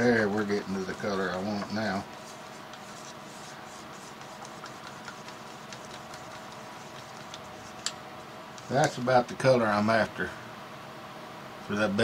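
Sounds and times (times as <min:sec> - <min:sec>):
paint stirred in a cup: 0:00.0 - 0:09.0
steady low hum: 0:00.0 - 0:12.0.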